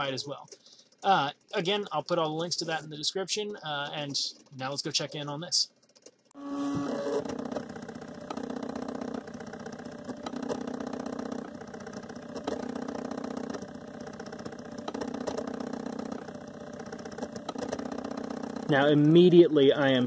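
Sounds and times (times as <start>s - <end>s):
stepper motors whirring and buzzing: 5.8s - 20.0s.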